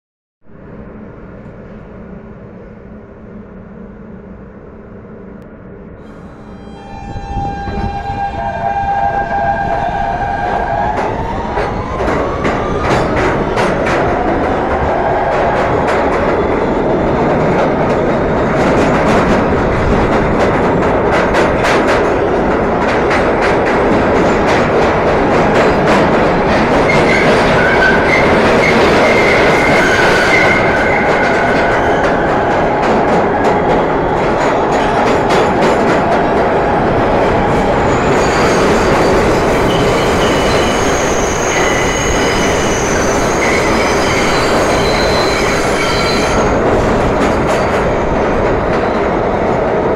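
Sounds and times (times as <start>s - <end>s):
subway train rumbling: 0.4s - 49.9s
wheel squeal: 37.9s - 46.5s.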